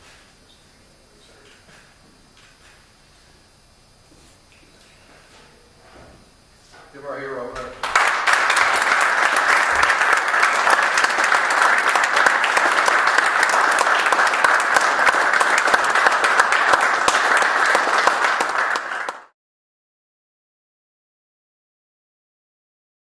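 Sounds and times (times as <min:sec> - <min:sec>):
audience applauding: 0:07.8 - 0:19.4.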